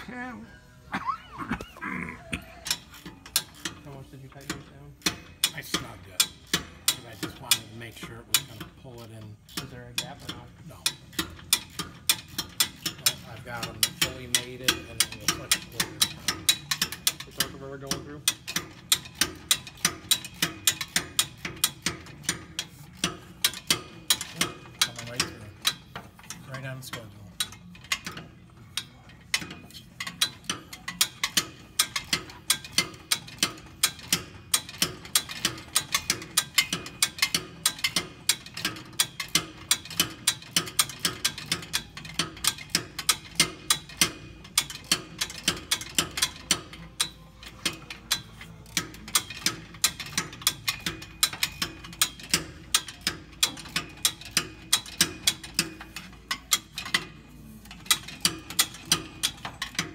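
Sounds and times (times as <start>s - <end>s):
socket ratchet clicking: 18.3s - 26.4s, 27.0s - 59.9s.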